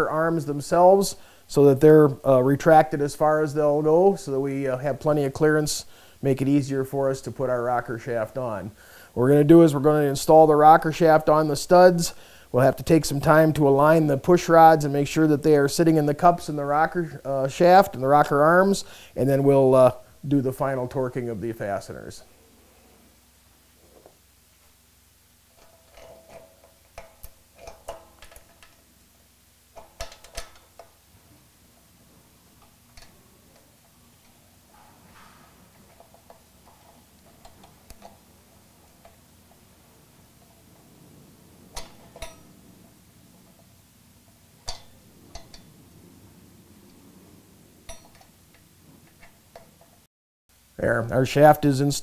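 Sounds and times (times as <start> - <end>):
metal clicking and clinking: 25.5 - 29.0, 29.7 - 31.0, 31.7 - 50.0.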